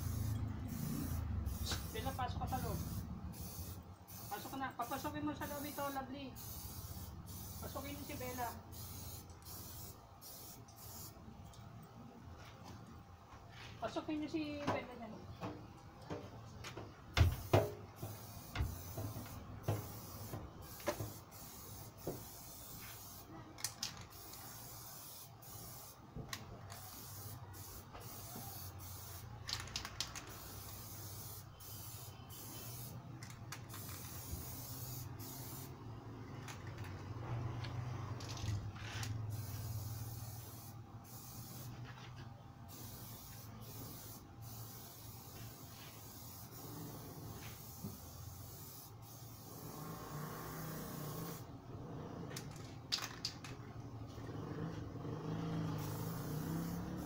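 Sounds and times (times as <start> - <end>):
spray can hissing: 0.0 - 11.2, 17.2 - 26.0, 26.7 - 35.8, 38.2 - 41.8, 42.7 - 51.4, 55.6 - 57.0.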